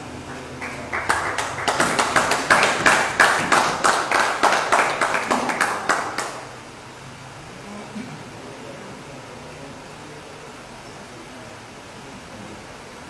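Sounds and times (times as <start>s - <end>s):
small audience clapping: 0.0s - 6.6s.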